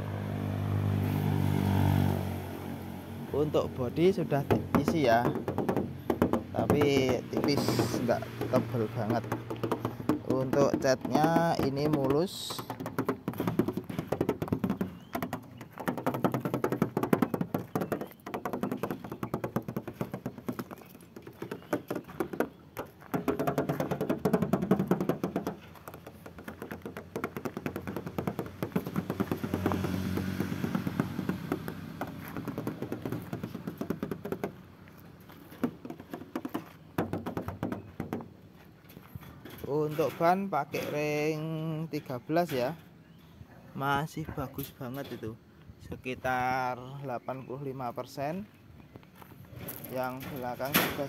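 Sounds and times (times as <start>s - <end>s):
hand tapping on metal car body: 4.3s - 34.7s, 35.3s - 38.4s.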